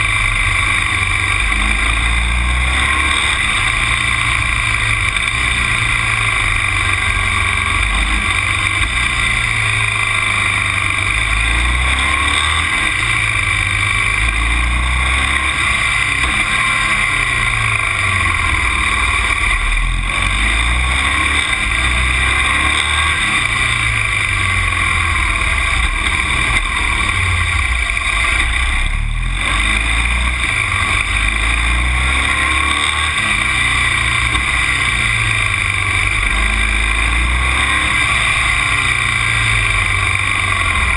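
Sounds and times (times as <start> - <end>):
low rumble: 0.0 - 32.4
vehicle engine and road noise: 0.0 - 40.9.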